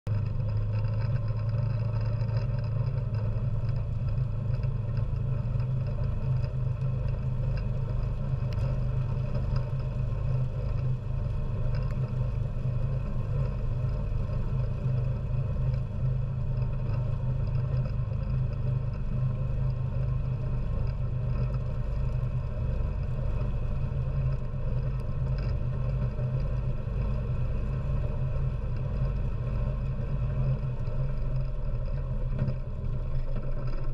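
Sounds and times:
atv engine running: 0.1s - 33.9s.

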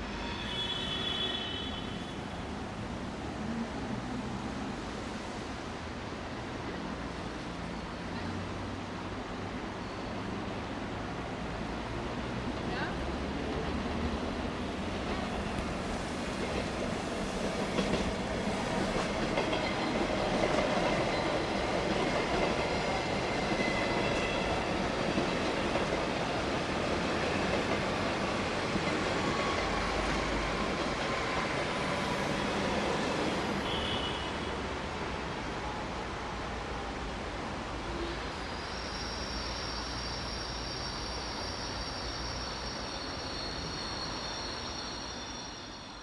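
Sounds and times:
train wheels on rails: 11.9s - 34.2s
high wheel squeals: 38.0s - 46.0s.

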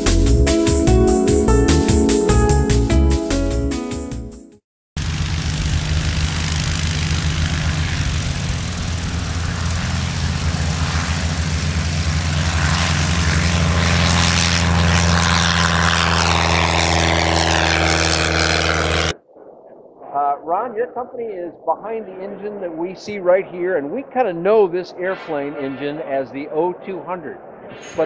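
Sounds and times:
light aircraft engine and propeller: 5.0s - 19.2s, 21.5s - 28.0s.

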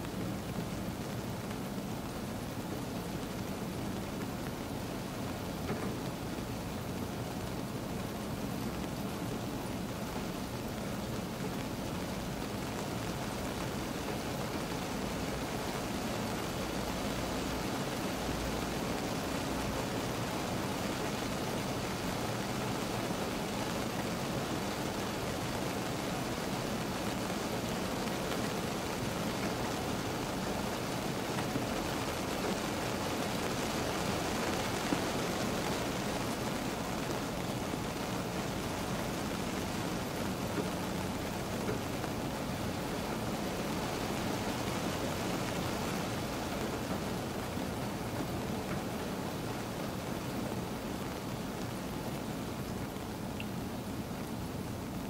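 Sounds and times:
single raindrops: 0.0s - 7.2s
rain falling on a car: 0.0s - 55.0s.

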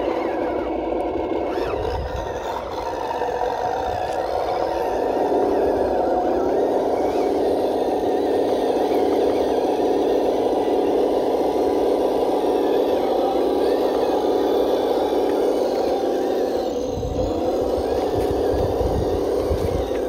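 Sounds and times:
toy truck drivetrain whirring: 0.0s - 20.0s.

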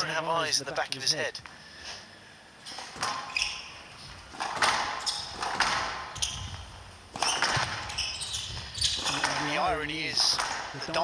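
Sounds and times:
squash ball hits: 2.8s - 3.6s, 4.3s - 8.1s, 8.9s - 11.0s.

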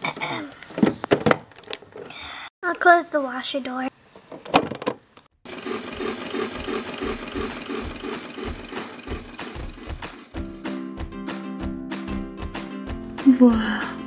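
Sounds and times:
music: 8.4s - 14.0s.

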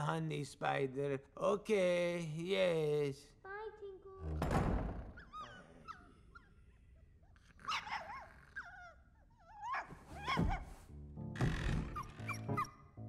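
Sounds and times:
cartoon dog whining: 7.3s - 10.7s.

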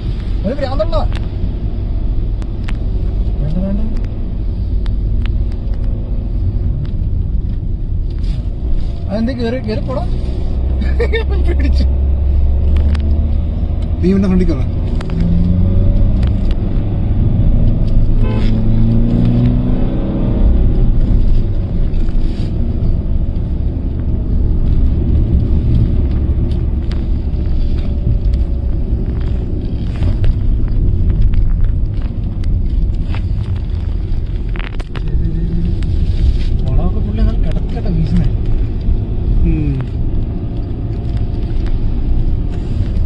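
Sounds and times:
car engine and road noise: 0.0s - 43.0s.

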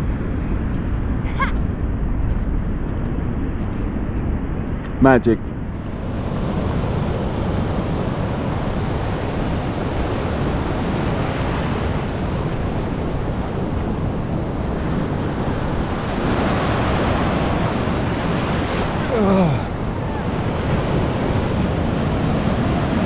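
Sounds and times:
surf washing over shallows: 5.0s - 23.0s.

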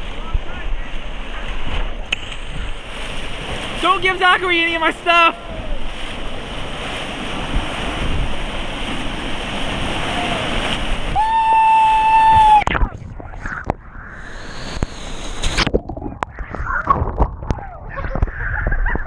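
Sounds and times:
whitewater rapid rushing: 0.0s - 18.3s
underwater clicks and gurgles: 12.6s - 19.0s.

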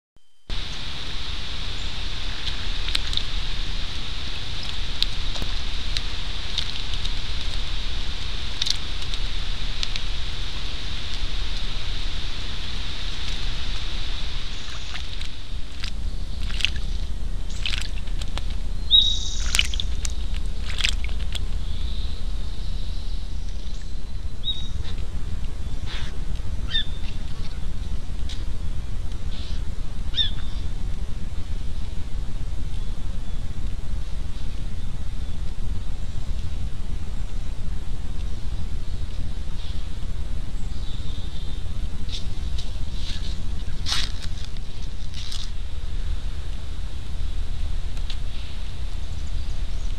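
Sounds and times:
low rumble and hiss: 0.2s - 49.9s
bird chirps and calls: 18.8s - 20.3s, 26.7s - 27.6s, 29.4s - 30.6s.

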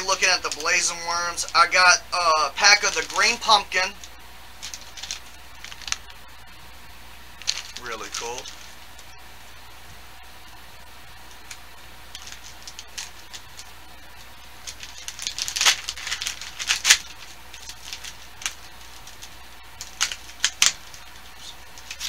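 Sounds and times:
plastic bag crinkling: 0.0s - 6.1s, 7.4s - 9.1s, 11.4s - 22.0s.

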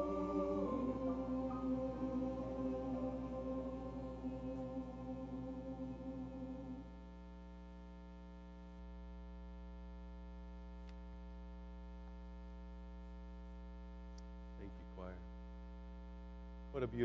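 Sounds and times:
buzzy electrical mains hum: 0.0s - 17.0s.

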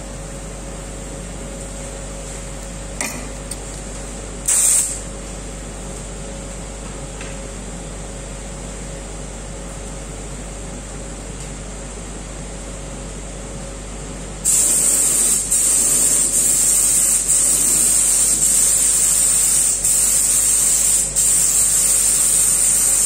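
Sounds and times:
steady background hum: 0.0s - 23.0s
spray gun hissing: 14.4s - 23.0s.

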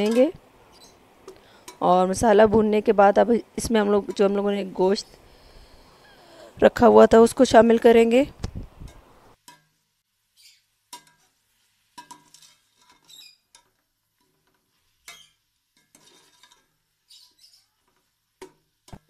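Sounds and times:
short high squeaks: 13.0s - 13.4s
metal spoon scraping pot: 15.0s - 17.4s.

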